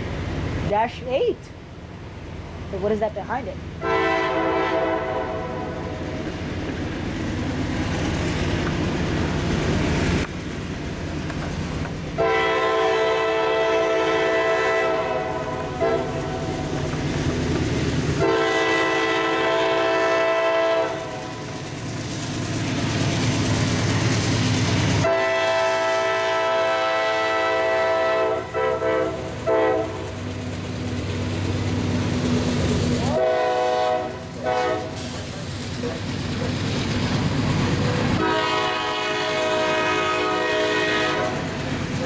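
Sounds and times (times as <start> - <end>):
diesel engines and wheels rumbling: 0.0 - 42.0
locomotive horn blasts: 3.8 - 5.9, 12.2 - 16.4, 18.2 - 21.2, 25.0 - 30.0, 33.1 - 35.0, 38.2 - 41.4.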